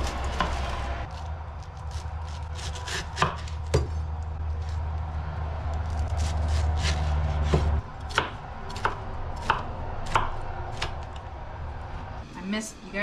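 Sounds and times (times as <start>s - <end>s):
low hum: 3.6s - 13.0s
knife chopping on cutting board: 6.2s - 10.9s.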